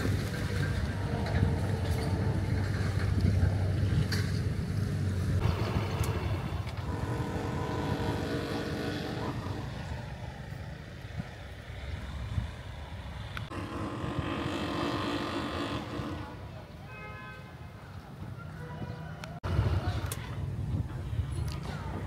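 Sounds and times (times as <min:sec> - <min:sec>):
vehicle engine rumble: 0:00.0 - 0:16.9.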